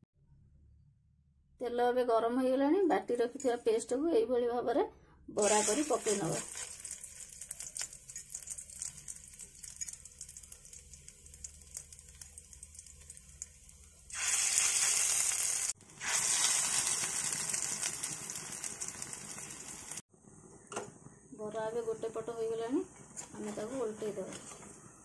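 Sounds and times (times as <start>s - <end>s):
oil sizzling in a pan: 5.4s - 20.1s.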